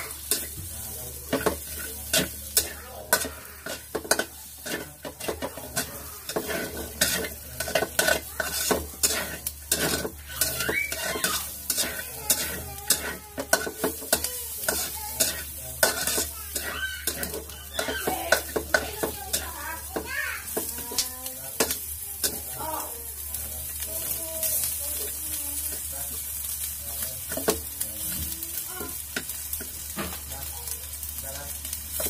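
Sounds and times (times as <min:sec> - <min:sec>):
metal spatula scraping a wok: 0:00.0 - 0:20.8
chicken sizzling in oil: 0:00.0 - 0:32.0.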